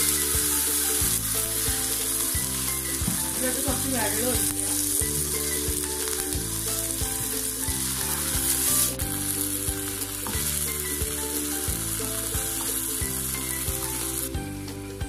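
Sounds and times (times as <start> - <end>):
chutney sizzling in hot oil: 0.0 - 15.0
soft background music: 0.0 - 15.0.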